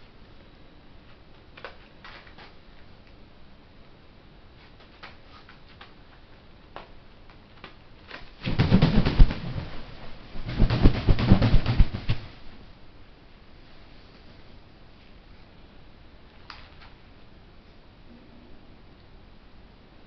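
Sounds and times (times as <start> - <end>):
gull wings flapping: 8.4 - 12.5.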